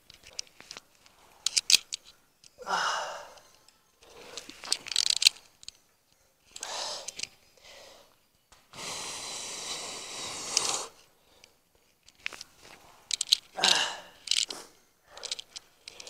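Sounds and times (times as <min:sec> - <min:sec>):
heavy breathing: 0:02.6 - 0:04.7, 0:06.2 - 0:11.6, 0:12.8 - 0:16.0.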